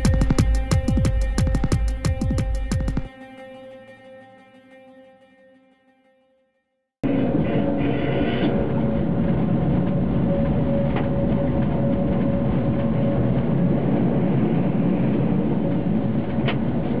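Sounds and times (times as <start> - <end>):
steady hum: 0.0 - 3.1, 7.0 - 17.0
tram wheels rumbling on rail: 7.0 - 17.0.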